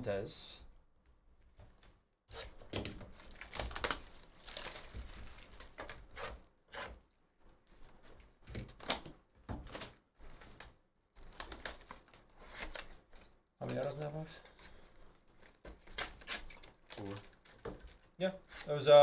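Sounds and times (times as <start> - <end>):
cardboard tearing: 2.3 - 7.0, 9.7 - 13.1, 15.4 - 18.8
packaging crinkling: 2.4 - 6.1, 9.7 - 18.7.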